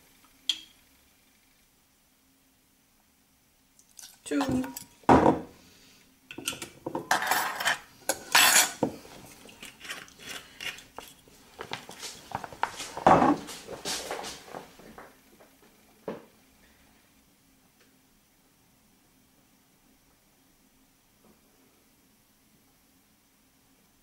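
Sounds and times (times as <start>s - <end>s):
metal spoons clinking on saucepan: 4.0s - 5.0s, 6.3s - 8.8s.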